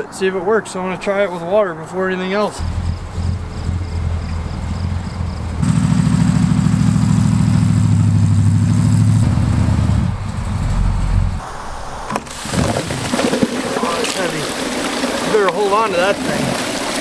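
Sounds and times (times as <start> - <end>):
pickup truck engine pulling: 2.6 - 11.4.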